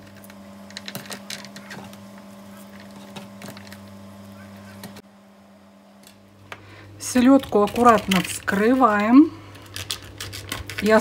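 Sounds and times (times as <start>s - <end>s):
steady low hum: 0.0s - 11.0s
onion slices crackling: 7.2s - 11.0s.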